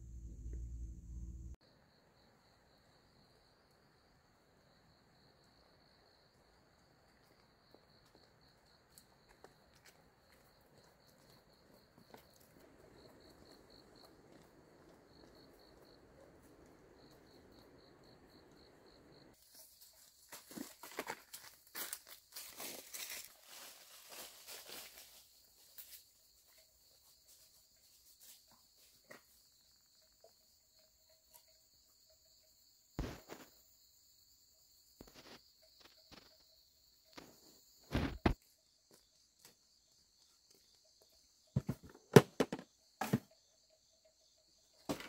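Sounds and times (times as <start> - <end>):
rustling footsteps: 19.4 - 25.8.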